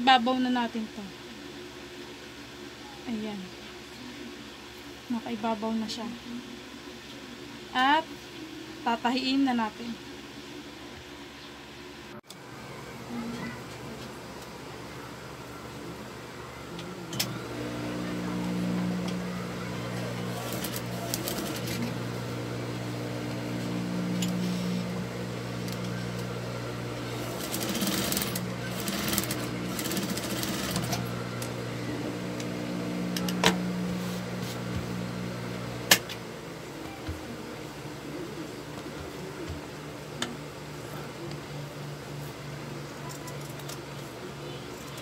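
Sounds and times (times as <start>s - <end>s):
sewing machine motor hum: 17.1s - 36.3s.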